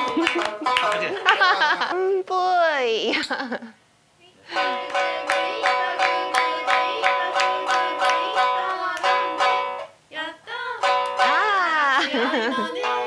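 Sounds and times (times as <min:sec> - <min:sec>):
shamisen playing: 0:00.0 - 0:01.2, 0:04.6 - 0:09.9, 0:10.8 - 0:13.0
hand claps: 0:00.0 - 0:01.6, 0:04.8 - 0:09.6, 0:10.9 - 0:11.4
people chanting: 0:04.8 - 0:09.4, 0:10.2 - 0:13.0.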